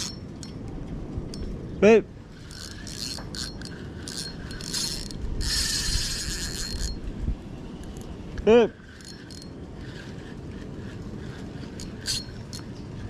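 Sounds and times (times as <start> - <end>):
fishing reel whirring: 0.0 - 0.6, 2.3 - 7.1, 8.7 - 13.0.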